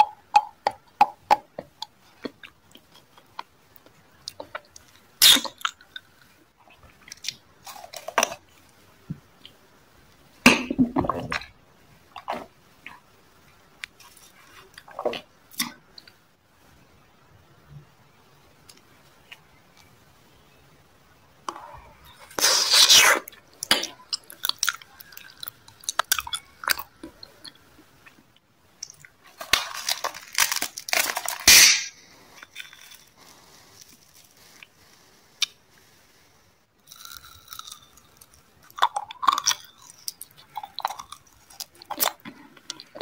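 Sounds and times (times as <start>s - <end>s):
sweets crunched and chewed: 0.0s - 8.8s, 22.1s - 35.6s, 36.8s - 43.0s.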